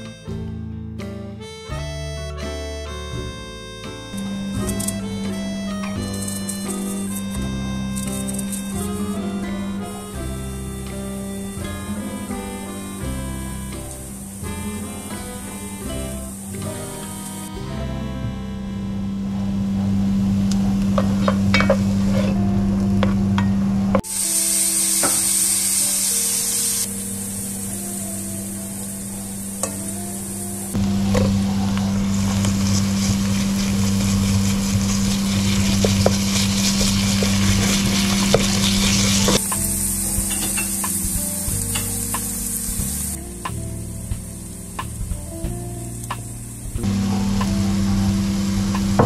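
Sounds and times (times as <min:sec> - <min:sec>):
low hum: 0:03.2 - 0:24.0, 0:26.9 - 0:49.0
spatula scraping a pan: 0:21.0 - 0:22.4, 0:31.1 - 0:39.4
food sizzling in a pan: 0:24.0 - 0:43.2.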